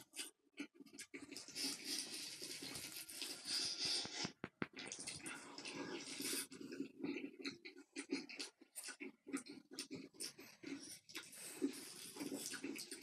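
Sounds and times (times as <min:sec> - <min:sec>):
person chewing and slurping: 0:00.0 - 0:13.0.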